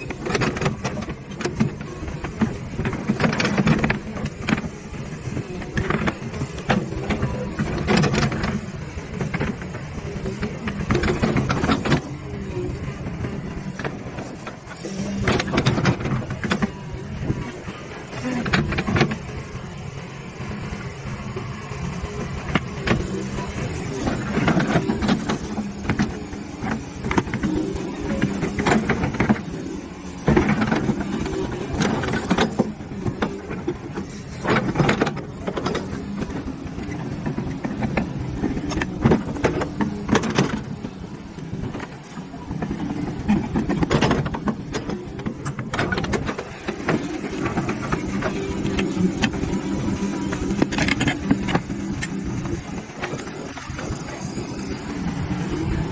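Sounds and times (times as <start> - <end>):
clanks of steel tracks and bucket: 0.0 - 55.9
excavator diesel engine: 0.0 - 55.9.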